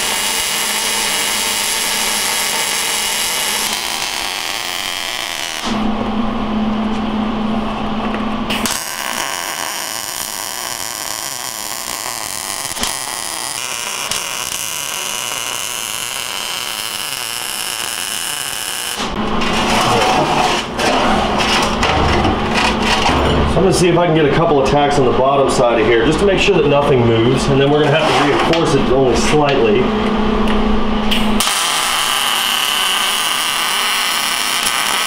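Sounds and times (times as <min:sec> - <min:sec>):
welder arc sizzling: 0:00.0 - 0:05.8, 0:08.5 - 0:19.2, 0:31.4 - 0:35.0.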